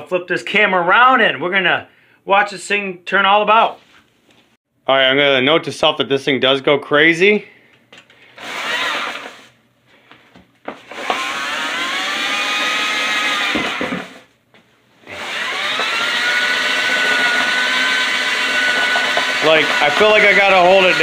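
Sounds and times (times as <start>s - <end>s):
floor scrubber brush motor whine: 8.4s - 9.5s, 10.8s - 14.2s, 15.1s - 21.0s.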